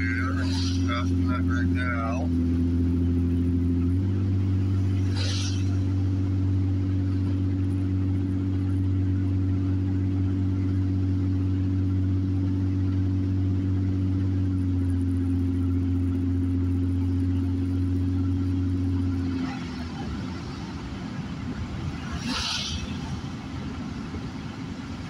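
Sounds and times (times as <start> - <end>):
car engine and tyres droning: 0.0 - 25.0
passing car hiss: 4.8 - 6.0, 21.9 - 23.7.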